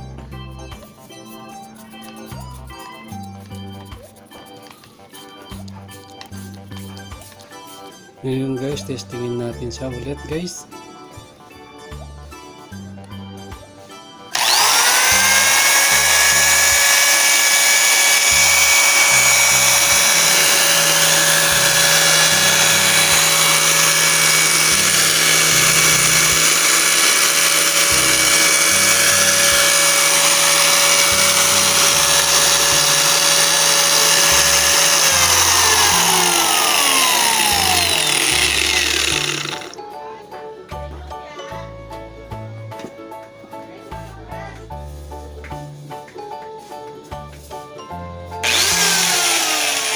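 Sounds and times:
angle grinder whining: 14.3 - 39.8, 48.4 - 49.9.

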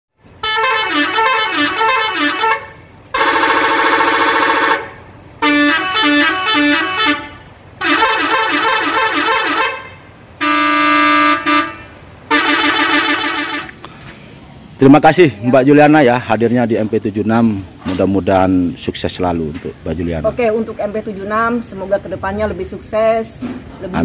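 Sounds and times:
musical air horn tunes: 0.4 - 13.8.

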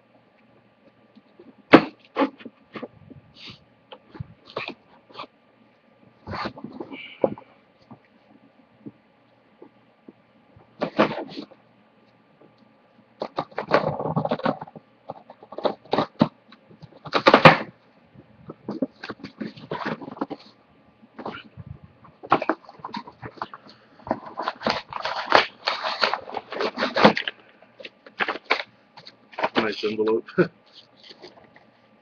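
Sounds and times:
cardboard and packing rustling: 1.4 - 5.3, 6.2 - 9.0, 10.6 - 11.6, 13.2 - 20.6, 21.2 - 31.8.

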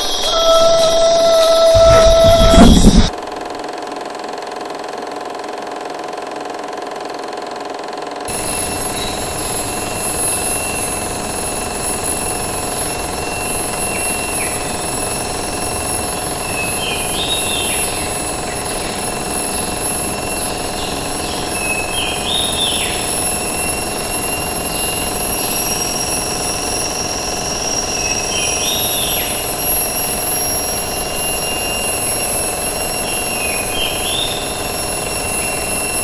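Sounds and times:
animal call rising and falling: 0.0 - 3.1
insects droning: 0.0 - 3.2, 8.3 - 36.0.

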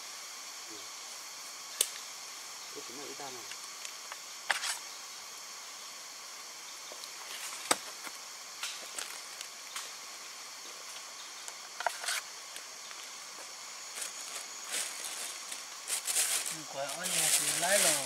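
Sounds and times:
insects droning: 0.0 - 18.0
plastic bag rustling: 14.0 - 18.0.

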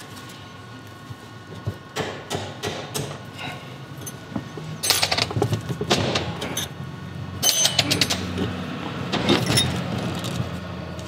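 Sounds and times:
metal parts clanking: 4.0 - 6.8, 7.4 - 10.4.

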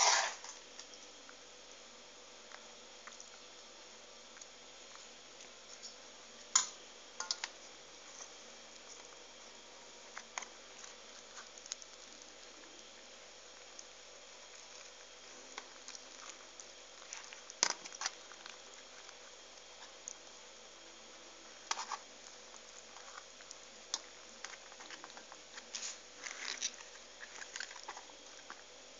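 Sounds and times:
cabbage leaves crinkling: 21.7 - 28.8.

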